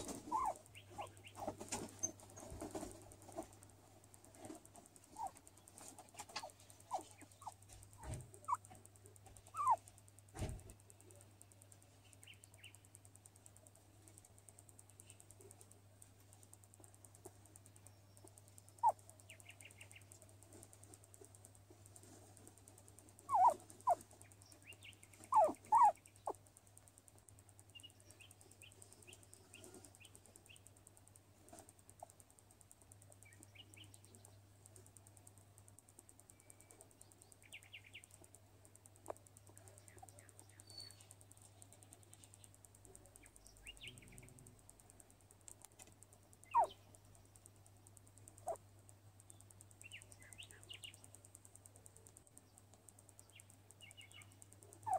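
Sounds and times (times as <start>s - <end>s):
guinea pig squeaking: 0.0s - 3.5s, 4.3s - 11.1s, 16.4s - 20.8s, 21.8s - 26.6s, 45.6s - 47.0s, 48.3s - 48.6s, 53.8s - 54.9s.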